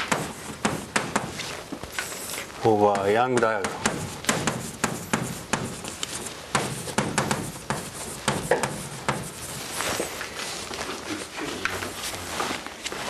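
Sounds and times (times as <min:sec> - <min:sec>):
chalk writing on blackboard: 0:00.0 - 0:10.1.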